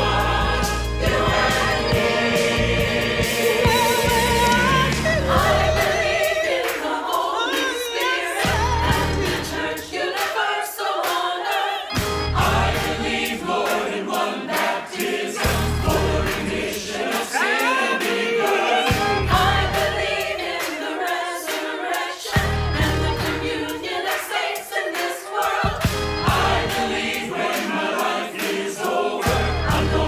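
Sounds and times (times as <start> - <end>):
choir singing gospel song: 0.0 - 30.0
accompaniment with deep bass: 12.0 - 13.2, 15.4 - 16.6, 18.9 - 20.1, 25.7 - 27.0.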